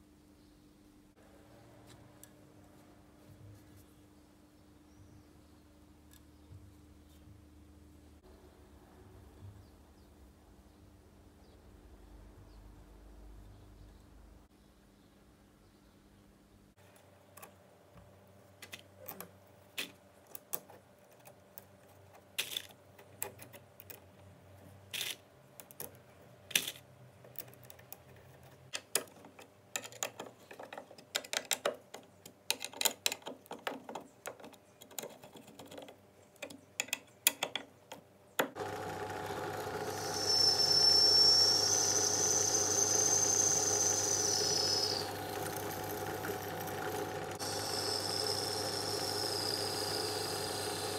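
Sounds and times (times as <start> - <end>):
drill press running: 38.6 - 50.9
drill bit squealing into metal: 39.9 - 45.1.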